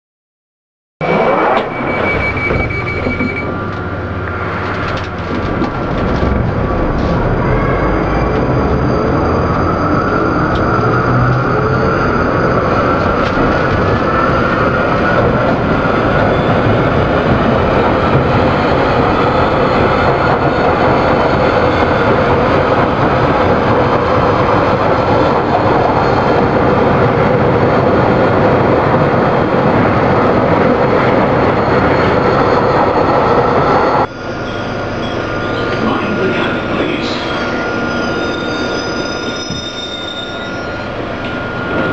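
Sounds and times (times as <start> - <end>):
train wheels roaring: 1.0 - 41.9
rising motor whine: 6.0 - 17.3.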